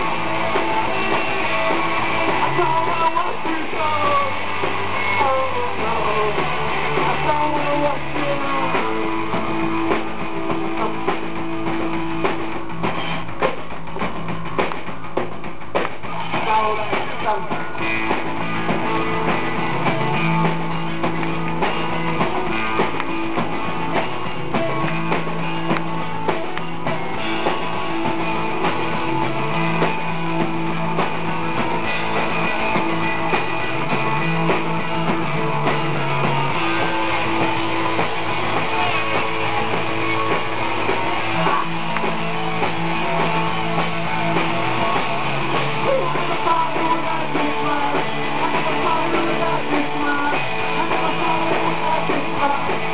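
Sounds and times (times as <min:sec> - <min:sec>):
drum kit: 0:00.0 - 0:52.9
electric guitars: 0:00.0 - 0:52.9
low held bass notes: 0:17.8 - 0:52.9.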